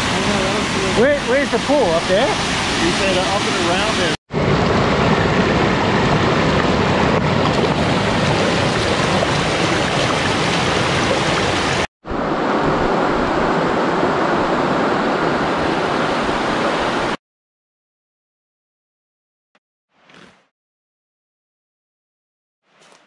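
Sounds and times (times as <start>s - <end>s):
mountain stream over rocks: 0.0s - 4.2s, 5.1s - 17.2s
waterfall: 0.0s - 17.2s.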